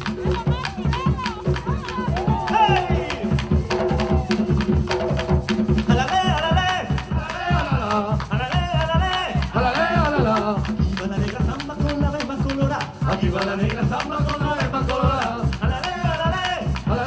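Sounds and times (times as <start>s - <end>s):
person singing: 0.0s - 4.8s
fast driving drumming: 0.0s - 17.0s
shaker: 0.0s - 17.0s.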